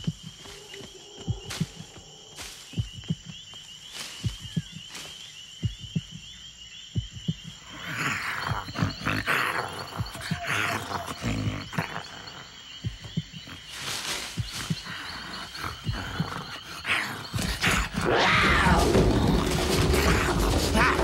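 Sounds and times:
frogs and insects chirring: 0:00.0 - 0:21.0
low drum-like thumps: 0:01.2 - 0:02.1, 0:02.8 - 0:03.5, 0:04.2 - 0:04.9, 0:05.6 - 0:07.6, 0:18.0 - 0:21.0
cheetah snarling breaths: 0:07.6 - 0:12.5, 0:13.4 - 0:21.0.

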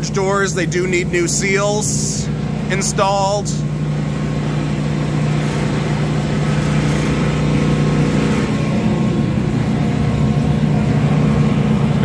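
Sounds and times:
electric blender motor humming: 0:03.6 - 0:12.0.

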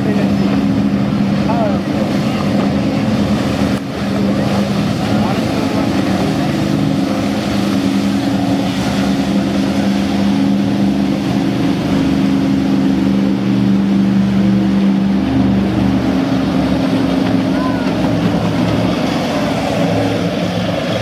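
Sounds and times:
boat engines droning: 0:00.0 - 0:21.0
rushing water and wake: 0:00.0 - 0:21.0.

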